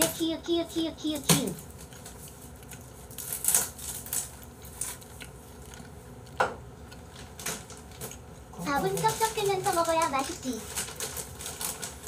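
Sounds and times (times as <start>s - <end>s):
chewing: 1.7s - 8.8s.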